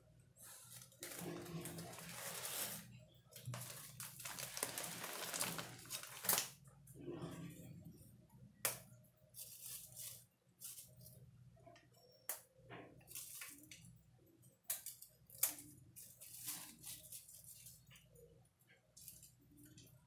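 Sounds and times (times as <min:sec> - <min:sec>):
faint low hum: 0:00.0 - 0:20.0
plastic bag rustling and crinkling: 0:00.5 - 0:06.6, 0:15.9 - 0:17.9.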